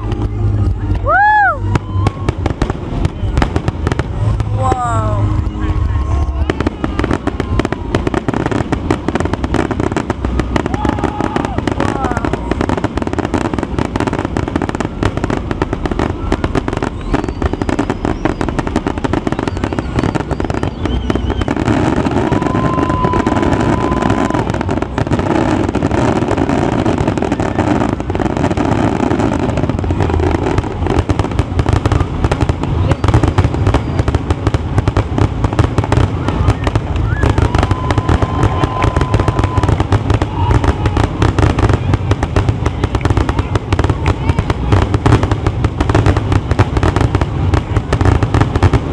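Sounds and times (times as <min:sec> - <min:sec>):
fireworks bangs and crackling: 0:00.0 - 0:48.9
high whistle: 0:16.8 - 0:18.7, 0:19.3 - 0:23.9.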